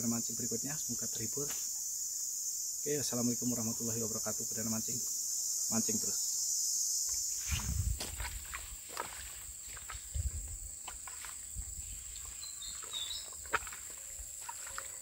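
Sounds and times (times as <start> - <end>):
high-pitched insect drone: 0.0 - 15.0
bird chirp: 11.8 - 15.0.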